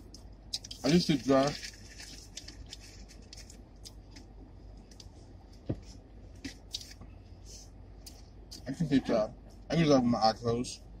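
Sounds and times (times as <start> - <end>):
people eating and handling food: 0.0 - 9.7.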